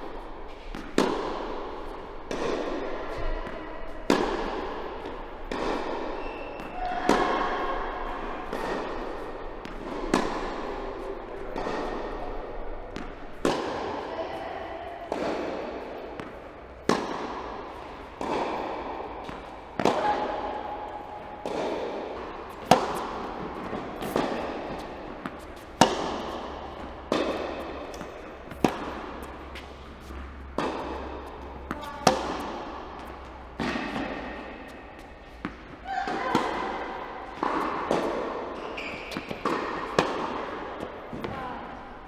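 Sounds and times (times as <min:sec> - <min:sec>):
racket hitting tennis ball: 0:00.0 - 0:42.0
tennis ball bouncing: 0:00.0 - 0:42.0.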